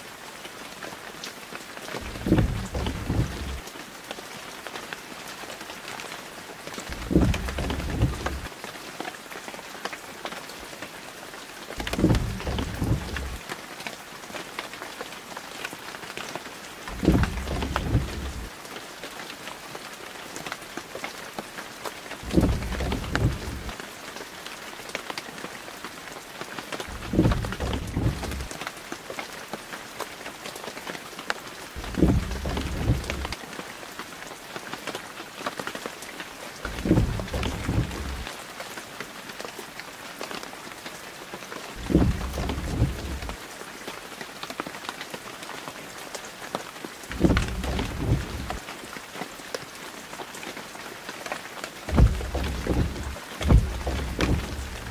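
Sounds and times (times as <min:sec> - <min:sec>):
steady rain falling: 0:00.0 - 0:54.9
low rumble: 0:02.0 - 0:03.6, 0:06.9 - 0:08.5, 0:11.8 - 0:13.4, 0:16.9 - 0:18.5, 0:22.2 - 0:23.7, 0:26.9 - 0:28.5, 0:31.8 - 0:33.4, 0:36.7 - 0:38.3, 0:41.8 - 0:43.4, 0:47.1 - 0:48.6, 0:51.9 - 0:54.9.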